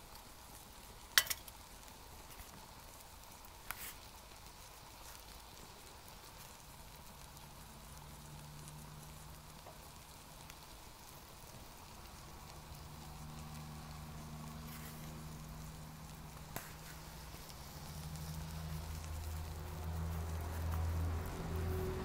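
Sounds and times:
stove burning with hiss: 0.0s - 22.0s
low steady hum: 5.5s - 22.0s.

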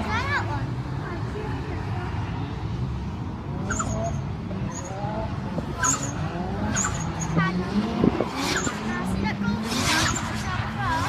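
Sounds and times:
car engines revving: 0.0s - 11.0s
tyres squealing: 3.6s - 5.0s, 5.8s - 7.6s.

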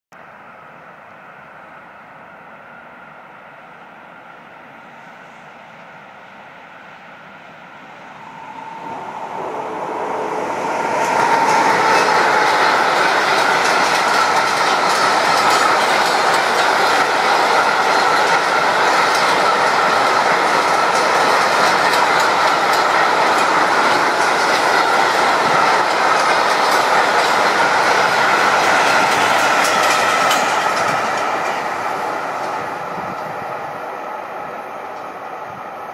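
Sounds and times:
freight train passing: 0.2s - 35.9s
high ringing tone: 7.7s - 13.7s
wheels clacking over rail joints: 10.7s - 33.4s.

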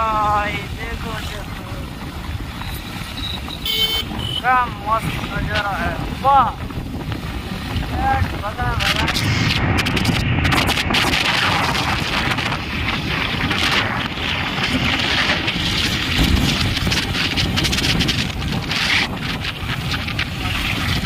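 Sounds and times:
tyres on road: 0.0s - 9.7s
motorcycle engine rumble: 0.0s - 21.0s
wind buffeting microphone: 0.0s - 21.0s.

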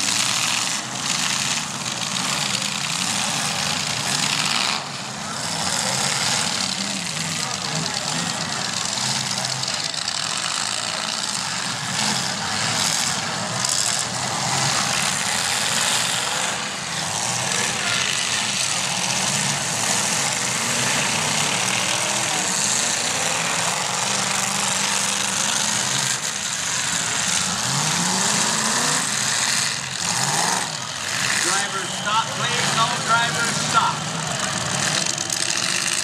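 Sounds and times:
car engines running and revving: 0.0s - 36.0s.

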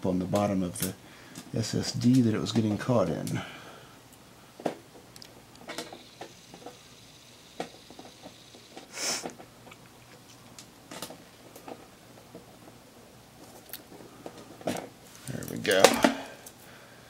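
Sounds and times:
brief hiss: 8.8s - 9.4s.

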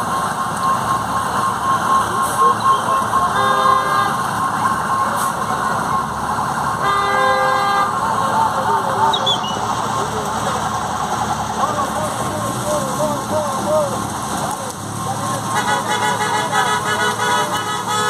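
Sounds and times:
vehicle engines in traffic: 0.0s - 18.0s
vehicle horn honking: 0.4s - 6.1s, 6.7s - 8.1s, 15.5s - 18.0s.

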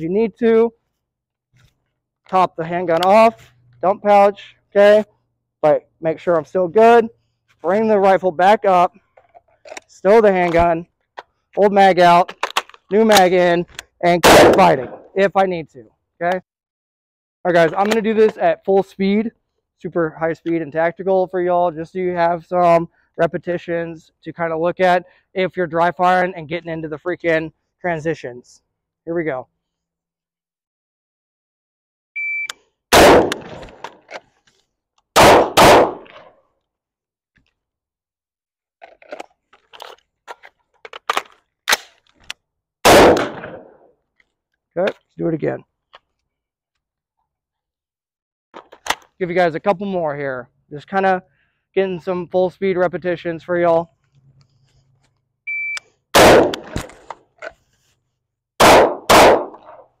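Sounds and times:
loud gunshots: 14.2s - 15.2s, 32.9s - 33.8s, 35.2s - 36.2s, 42.8s - 43.7s, 56.2s - 56.9s, 58.6s - 59.7s
pistol shots: 14.2s - 15.2s, 32.9s - 33.8s, 35.2s - 36.3s, 42.8s - 43.8s, 56.2s - 56.9s, 58.6s - 59.8s
rifle shot: 14.2s - 15.2s, 32.9s - 33.8s, 35.2s - 36.3s, 42.8s - 43.8s, 56.2s - 57.0s, 58.6s - 59.8s
short electronic beep: 32.2s - 32.6s, 55.5s - 55.8s.

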